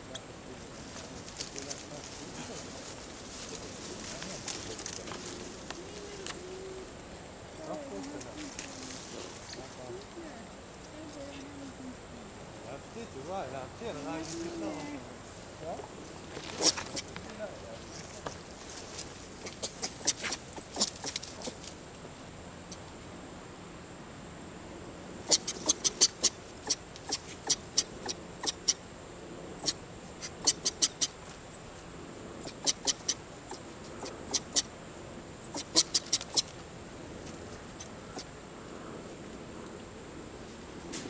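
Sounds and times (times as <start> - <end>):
animal making sharp high clicks: 16.5 - 17.2, 19.4 - 21.6, 25.2 - 28.8, 29.6 - 31.4, 32.4 - 34.7, 35.4 - 36.6.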